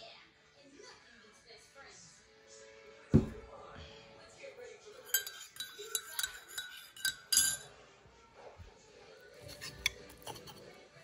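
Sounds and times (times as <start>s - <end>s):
cutlery clinking on plates: 5.0s - 7.7s, 9.4s - 10.7s.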